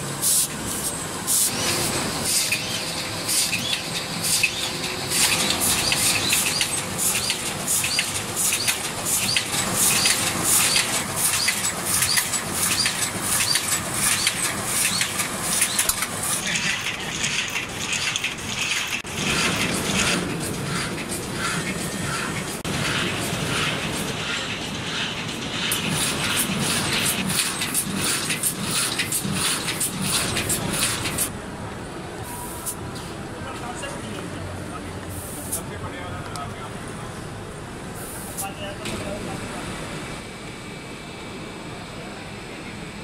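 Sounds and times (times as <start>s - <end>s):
die-cutting machine clattering: 1.5s - 31.3s.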